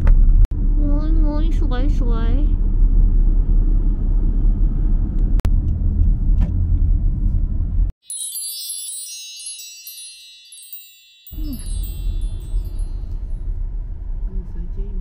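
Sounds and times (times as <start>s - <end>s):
car road and engine rumble: 0.0s - 8.0s, 11.4s - 15.0s
tinkling chime sound effect: 8.0s - 13.4s.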